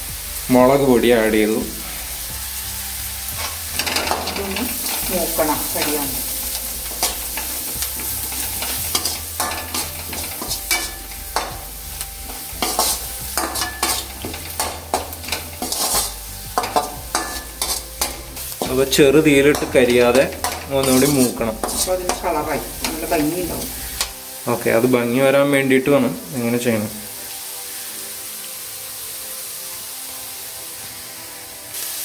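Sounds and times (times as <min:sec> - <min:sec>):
food sizzling in oil: 0:00.0 - 0:32.0
spoon scraping and clinking on pan: 0:03.3 - 0:24.2.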